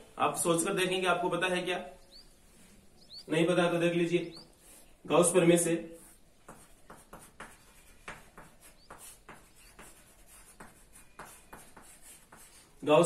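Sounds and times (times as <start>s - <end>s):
chalk tapping and scraping on board: 6.0s - 12.9s.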